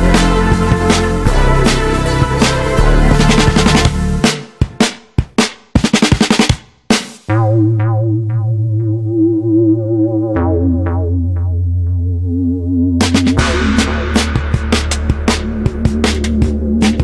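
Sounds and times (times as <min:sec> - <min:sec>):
drums: 0:00.0 - 0:08.1, 0:13.0 - 0:17.0
wavering synthesizer chord: 0:07.3 - 0:14.1
steady bass note: 0:07.3 - 0:16.9.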